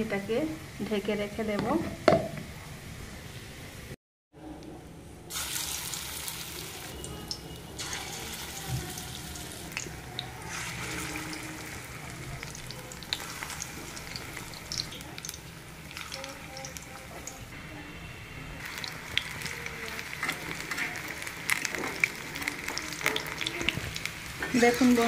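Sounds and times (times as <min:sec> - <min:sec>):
food sizzling in hot oil: 0:05.3 - 0:17.5, 0:18.6 - 0:25.0.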